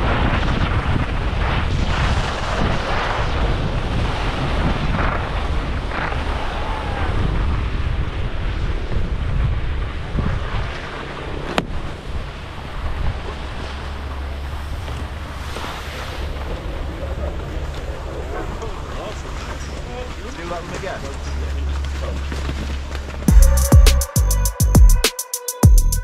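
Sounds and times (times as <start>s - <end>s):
skis scraping on packed snow: 0.0s - 6.2s, 14.4s - 18.2s
wind buffeting microphone: 0.0s - 21.7s.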